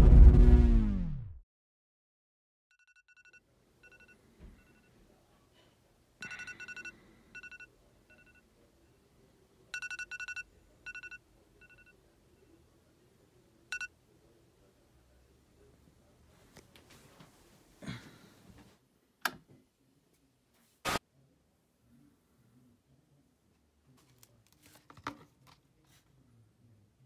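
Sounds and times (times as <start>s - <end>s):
faint phone ringing pulses: 2.7s - 5.0s, 6.2s - 8.5s, 9.7s - 12.0s.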